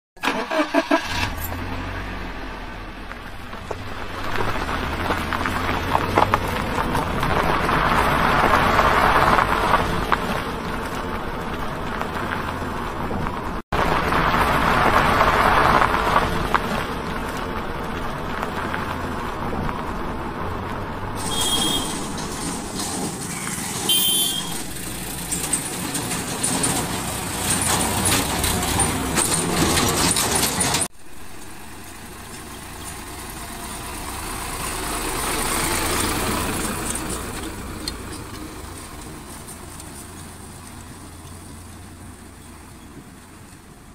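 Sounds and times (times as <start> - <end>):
tractor diesel engine running: 0.2 - 43.9.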